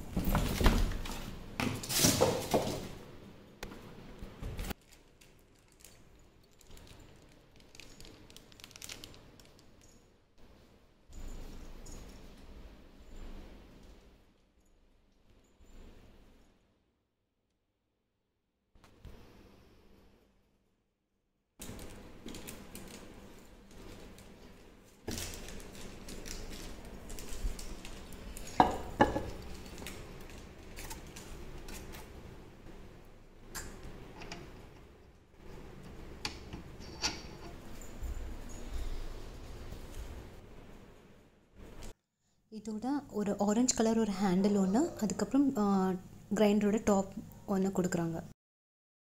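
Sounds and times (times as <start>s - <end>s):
steel drum being handled: 35.6s - 38.7s.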